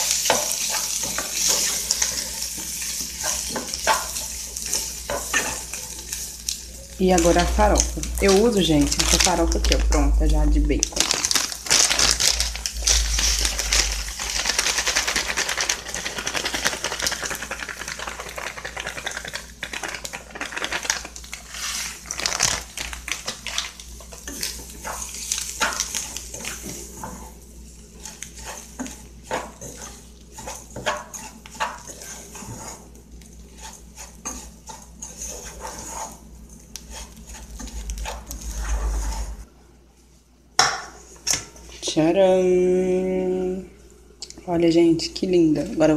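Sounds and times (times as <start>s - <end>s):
spatula scraping a saucepan: 0.2s - 6.2s, 28.0s - 39.5s.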